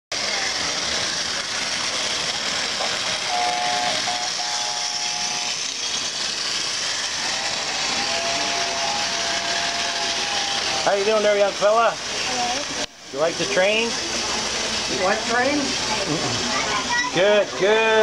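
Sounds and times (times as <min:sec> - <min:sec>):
model trains whirring on track: 0:00.1 - 0:18.0
model train whistle: 0:03.2 - 0:05.7, 0:07.1 - 0:10.9.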